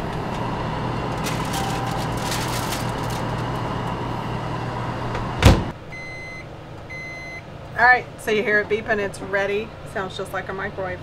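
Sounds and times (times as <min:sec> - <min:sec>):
oven low hum: 0:00.0 - 0:11.0
tin foil crinkling: 0:01.0 - 0:03.8
oven door shutting: 0:05.1 - 0:05.7.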